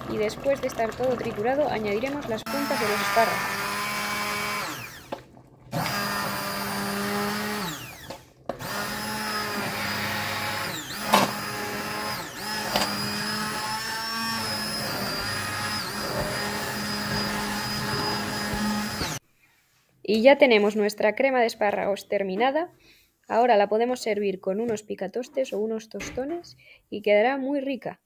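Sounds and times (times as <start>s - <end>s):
hand blender motor running: 2.1s - 19.2s.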